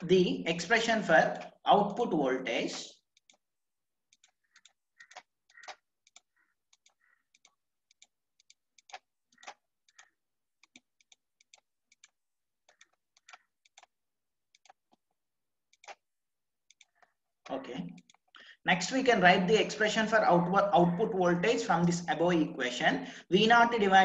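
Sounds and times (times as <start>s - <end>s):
computer mouse clicking: 2.7s - 3.4s, 4.1s - 15.1s, 15.7s - 16.1s, 16.7s - 18.4s.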